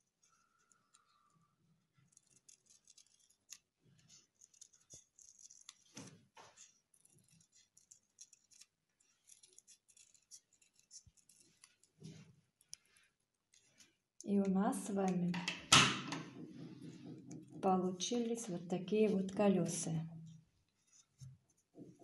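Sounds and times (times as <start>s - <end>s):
small scissors snipping paper: 2.0s - 15.4s.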